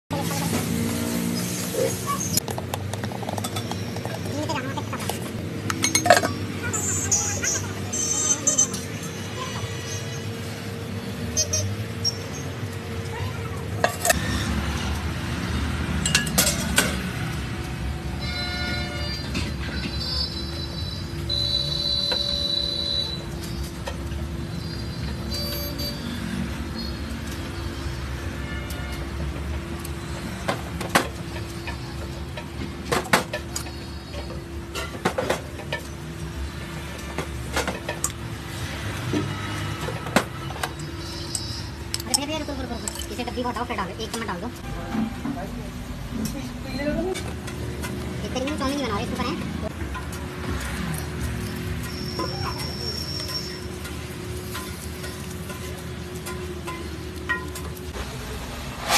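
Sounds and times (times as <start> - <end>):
street background: 0.1 - 58.9
sharp cooking clicks and taps: 49.7 - 58.0.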